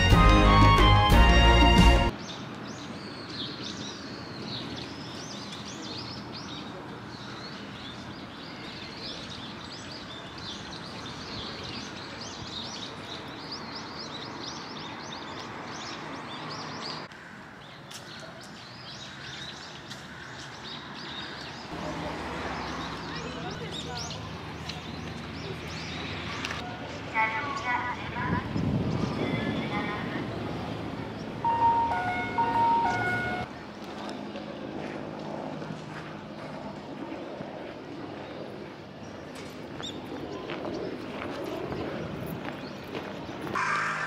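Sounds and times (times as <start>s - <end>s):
outdoor background noise: 0.0s - 44.0s
small birds chirping: 2.1s - 21.8s, 22.5s - 26.6s.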